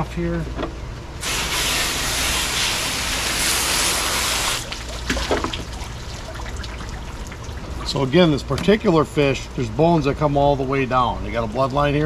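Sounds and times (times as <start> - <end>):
garden hose spraying water: 1.2 - 7.2.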